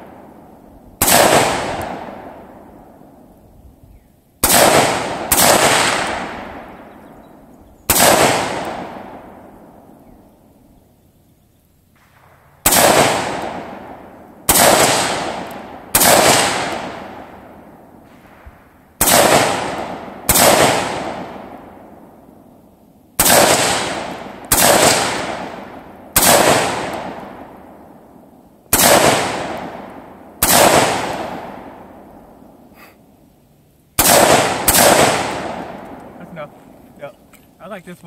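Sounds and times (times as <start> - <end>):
rifle shots: 1.0 - 3.0, 4.4 - 7.0, 7.9 - 9.5, 12.0 - 18.4, 19.0 - 21.9, 23.2 - 27.8, 28.7 - 32.2, 34.0 - 36.6.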